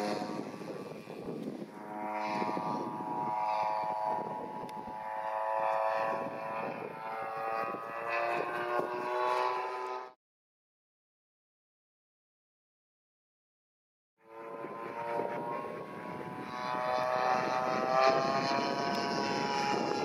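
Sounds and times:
model airplane engine: 0.0 - 10.2, 14.2 - 20.0.

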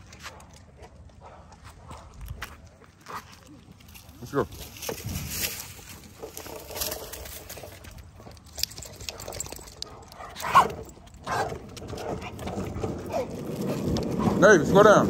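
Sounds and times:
skateboard wheels rolling on concrete: 0.0 - 15.0
wheels clicking over joints: 3.2 - 15.0.

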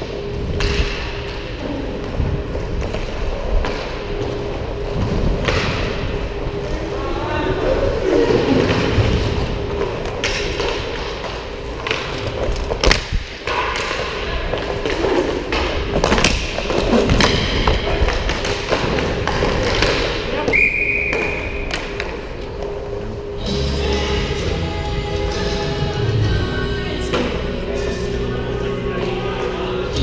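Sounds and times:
players' voices: 1.2 - 12.6, 13.3 - 30.0
sticks and puck hitting boards: 10.2 - 22.2.

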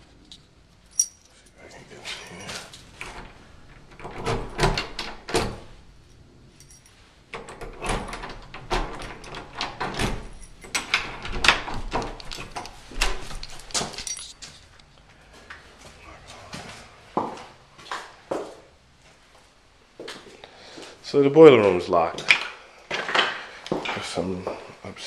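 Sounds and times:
door handle rattling: 3.0 - 5.7, 7.4 - 14.3
locked wooden door rattling: 3.0 - 5.9, 7.4 - 14.3.

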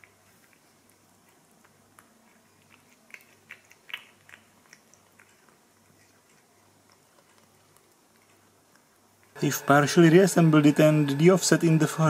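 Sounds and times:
cat chewing and licking: 0.0 - 9.4.

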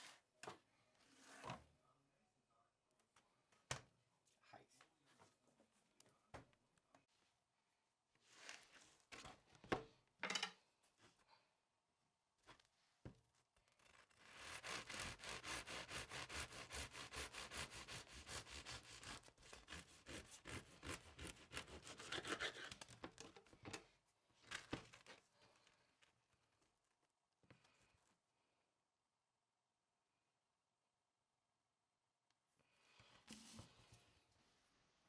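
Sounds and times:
knife sawing through bread: 14.0 - 22.9.

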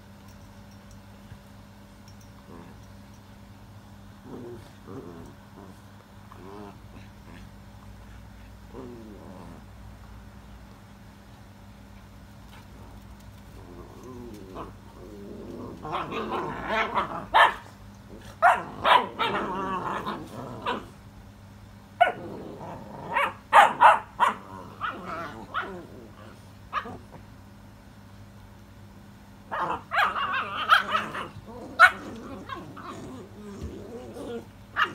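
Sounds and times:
puppies growling and yapping: 2.2 - 2.9, 4.2 - 10.1, 12.5 - 21.1, 22.0 - 27.4, 29.5 - 34.9.

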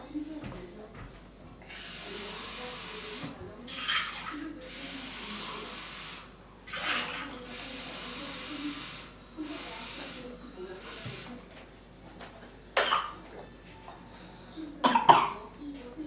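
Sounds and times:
kitchen tap running: 1.6 - 11.4.

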